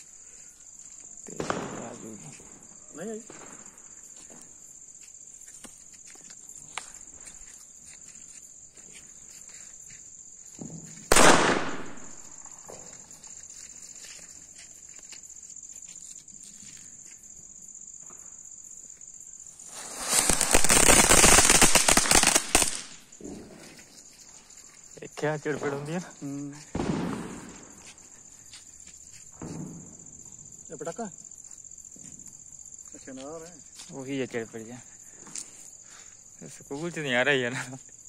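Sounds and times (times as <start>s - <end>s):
crickets chirring: 0.0s - 38.0s
firecracker bang: 1.3s - 2.6s, 10.6s - 13.0s, 19.6s - 23.4s, 26.7s - 27.9s, 29.4s - 30.1s
firework hissing and crackling: 10.6s - 13.0s, 19.4s - 23.7s, 26.7s - 28.2s.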